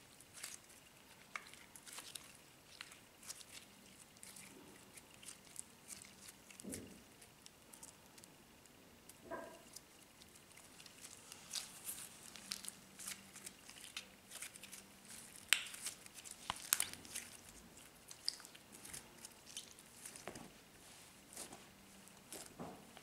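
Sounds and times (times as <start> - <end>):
slime squished by hand: 9.2 - 20.5.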